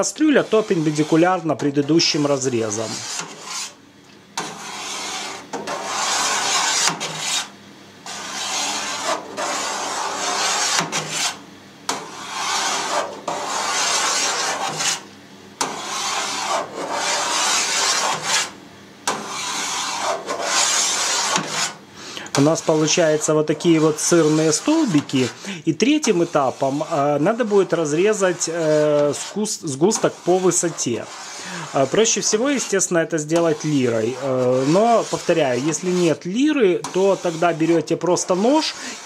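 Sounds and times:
knife scraping metal pan: 0:00.3 - 0:03.8, 0:04.4 - 0:15.0, 0:15.6 - 0:18.5, 0:19.1 - 0:39.0.

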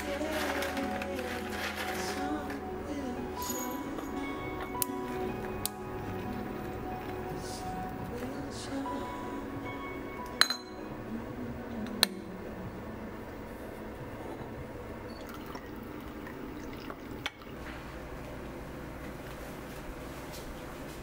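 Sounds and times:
ceramic lid clinks: 0:10.4 - 0:10.8
tea pouring into cup: 0:15.1 - 0:17.7.

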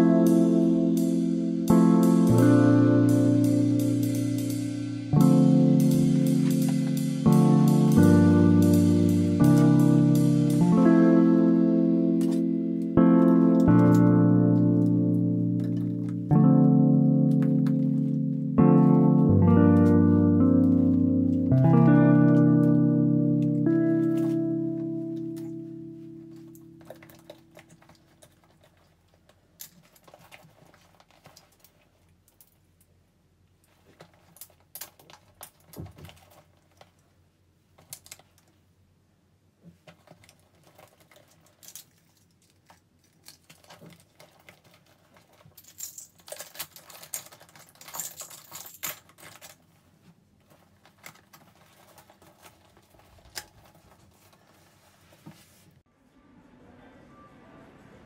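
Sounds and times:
small items clicking and tapping: 0:39.8 - 0:49.6
rustling in a handbag: 0:39.8 - 0:55.8.

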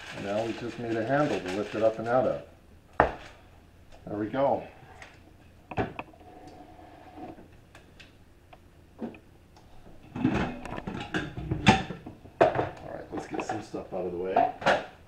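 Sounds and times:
kitchen items knocking and clattering: 0:10.1 - 0:13.7.

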